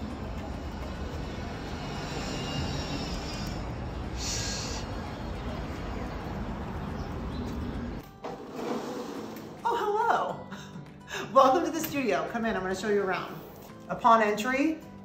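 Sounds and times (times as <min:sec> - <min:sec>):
city street rumble: 0:00.0 - 0:09.1.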